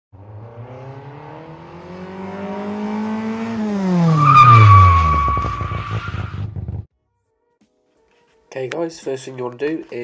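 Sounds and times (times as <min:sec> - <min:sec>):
car engine revving: 0:00.1 - 0:06.8
tyre squeal: 0:04.1 - 0:06.5.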